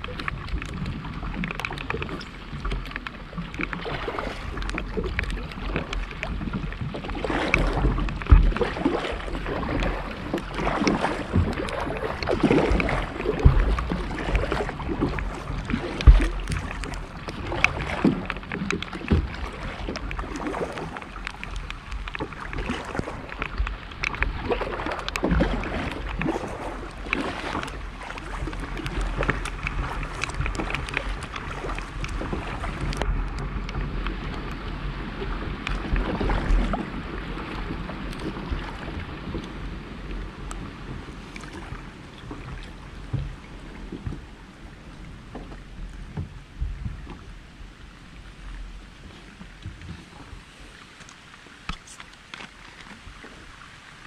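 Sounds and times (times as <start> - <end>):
paddle splashing in water: 0.0 - 54.0
water dripping: 9.7 - 33.8.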